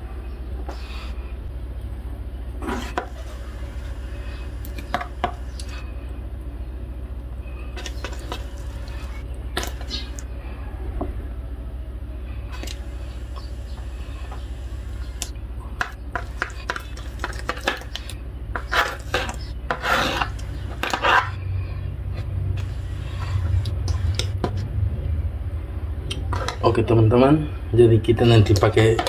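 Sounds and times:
steady low hum: 0.0s - 29.0s
knife cutting on plastic board: 18.6s - 21.3s.

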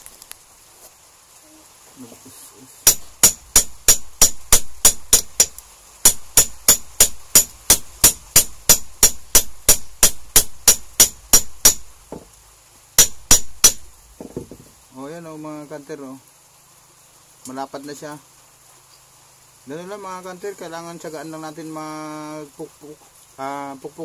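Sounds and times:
hammer blows on metal: 2.8s - 11.9s, 13.0s - 13.9s.

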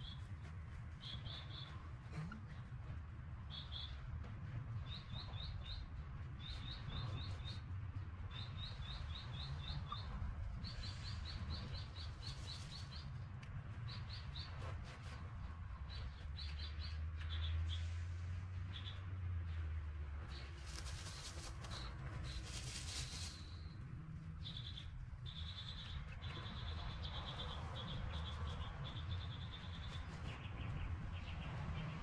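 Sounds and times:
small birds chirping: 0.0s - 17.9s, 18.5s - 19.6s, 20.2s - 32.0s.

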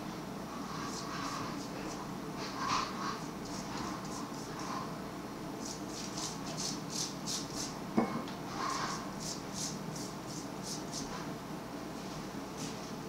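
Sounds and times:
pastry brush swishing on dough: 0.6s - 4.9s.

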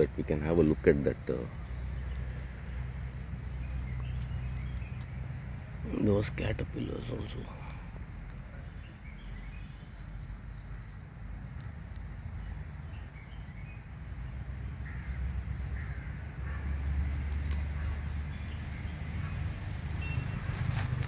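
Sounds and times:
short bird calls: 14.8s - 21.0s.

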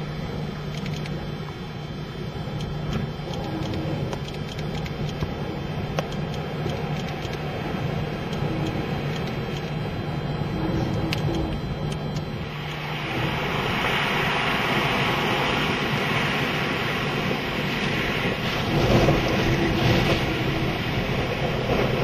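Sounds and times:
storm wind: 0.0s - 22.0s
sharp clicks: 0.7s - 1.2s, 2.6s - 5.3s, 5.9s - 7.4s, 8.3s - 9.7s
breaking surf: 12.5s - 22.0s.

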